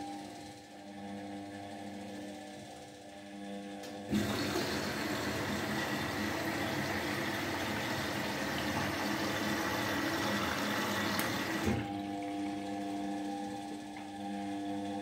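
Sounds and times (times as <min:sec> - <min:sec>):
washing machine hum: 0:03.3 - 0:15.0
water rushing into machine: 0:04.1 - 0:11.9.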